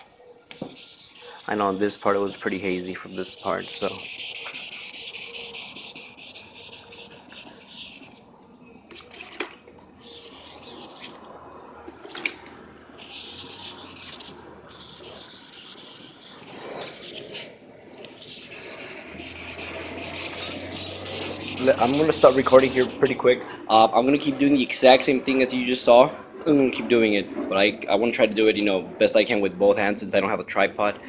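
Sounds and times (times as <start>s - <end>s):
sandpaper scratching plastic: 0.5s - 8.2s, 8.9s - 11.3s, 13.0s - 23.2s.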